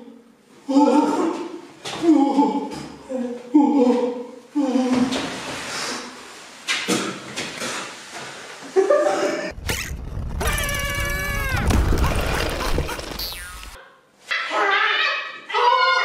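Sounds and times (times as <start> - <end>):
low rumble: 9.5 - 13.8
high squealing cry: 9.6 - 12.2.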